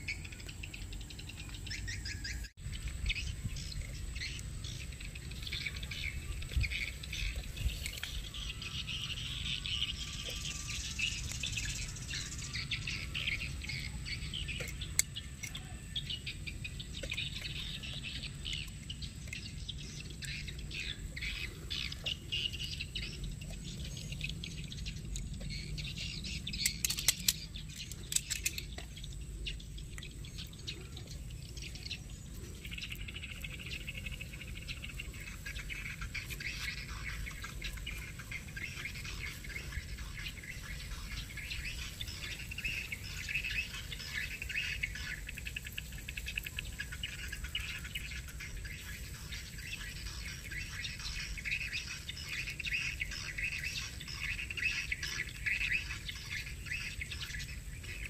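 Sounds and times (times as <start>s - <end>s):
metal tongs clicking on grill: 26.6s - 28.8s.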